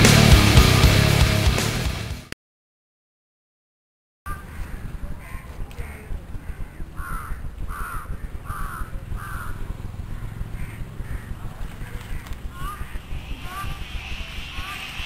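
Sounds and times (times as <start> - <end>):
crow cawing: 4.3 - 14.1.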